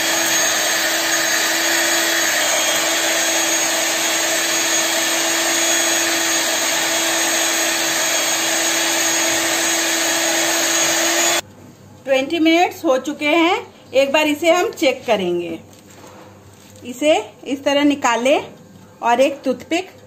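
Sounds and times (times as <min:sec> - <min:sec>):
beaters whipping cream in bowl: 0:00.0 - 0:11.4
electric hand mixer whine: 0:00.0 - 0:11.4.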